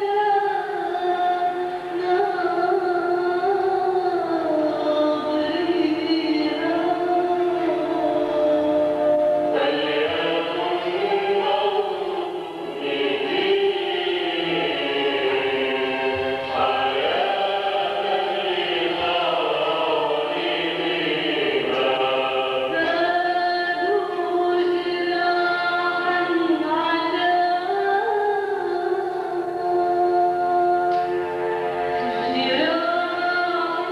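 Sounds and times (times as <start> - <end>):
woman singing a slow hymn: 0.0 - 15.2, 22.7 - 31.1, 32.0 - 33.9
choir-like backing: 0.0 - 33.9.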